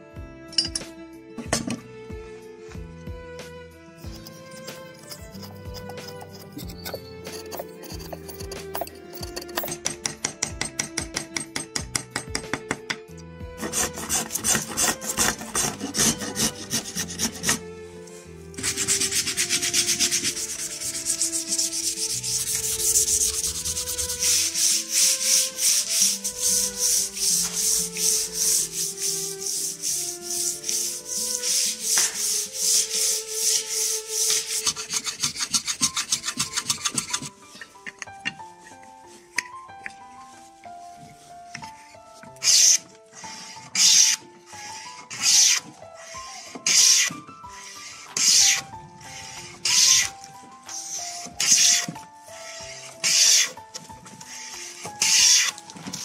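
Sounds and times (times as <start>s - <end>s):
soft background music: 0.0s - 56.0s
sandpaper rubbing on wood: 13.6s - 17.6s, 18.6s - 37.3s, 42.4s - 56.0s.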